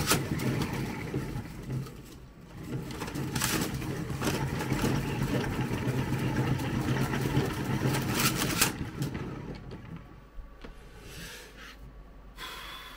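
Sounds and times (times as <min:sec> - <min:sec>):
small motor humming with rattle: 0:00.0 - 0:10.3.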